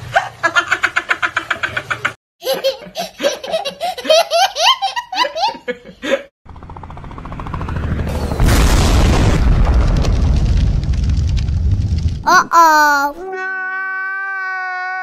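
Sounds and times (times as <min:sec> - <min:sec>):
toddler giggling: 0:02.4 - 0:05.6
explosion sound effect: 0:08.1 - 0:12.3.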